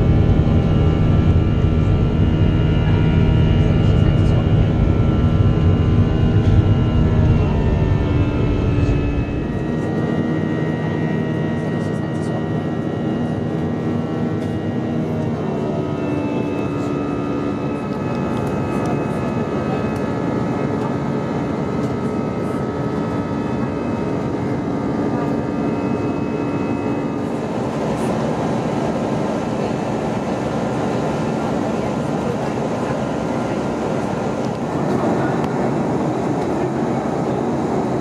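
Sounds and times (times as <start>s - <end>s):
jet engine drone: 0.0s - 38.0s.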